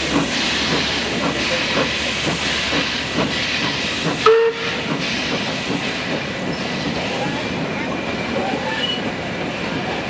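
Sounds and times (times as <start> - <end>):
steam hissing: 0.0 - 7.6
steam whistle toot: 4.2 - 4.8.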